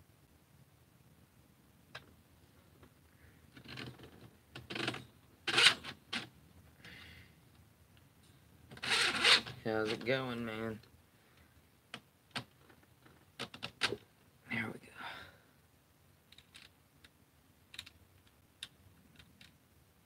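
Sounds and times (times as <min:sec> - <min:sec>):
plastic parts clicking: 0:16.3 - 0:19.6.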